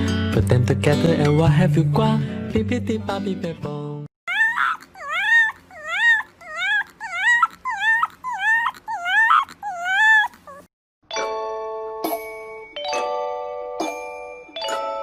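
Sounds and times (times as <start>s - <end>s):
puppy yipping: 4.3s - 10.7s.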